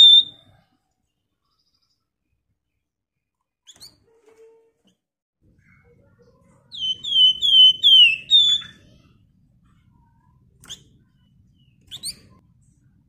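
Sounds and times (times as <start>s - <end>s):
bird whistling falling notes: 0.0s - 0.3s, 6.8s - 8.7s
bird chirping: 0.0s - 0.5s, 6.6s - 9.0s, 10.1s - 12.4s.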